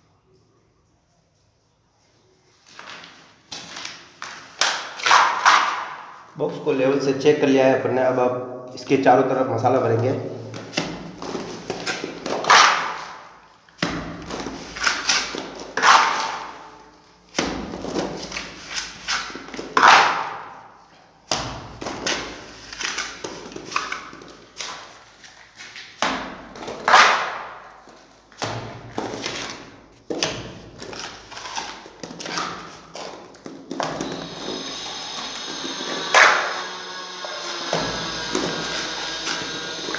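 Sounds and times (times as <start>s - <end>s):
trowel slapping mortar: 3.6s - 6.2s, 10.6s - 20.6s, 21.3s - 39.9s
trowel scraping wet mortar: 14.2s - 16.7s.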